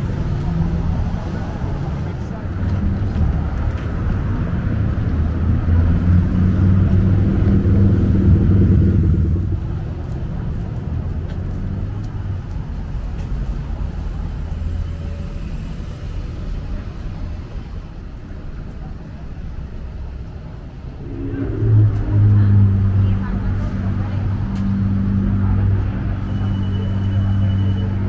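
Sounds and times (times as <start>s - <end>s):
traffic rumble: 0.0s - 28.0s
vehicle engine droning: 0.0s - 28.0s.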